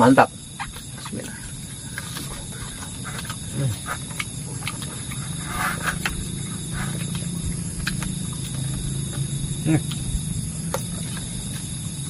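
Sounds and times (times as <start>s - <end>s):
frogs pulsing calls: 0.0s - 12.0s
insects trilling: 0.0s - 12.0s
people chewing and lip-smacking: 0.3s - 12.0s.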